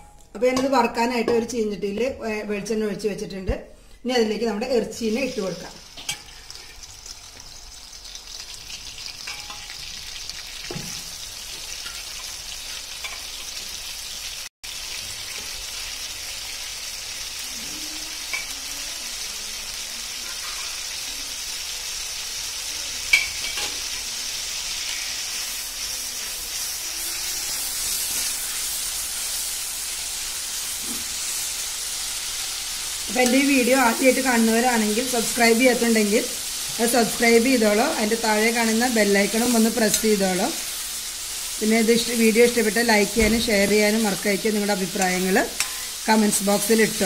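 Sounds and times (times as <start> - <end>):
meat sizzling in oil: 5.0 - 47.0
metal ladle clinking on pan: 9.3 - 9.8.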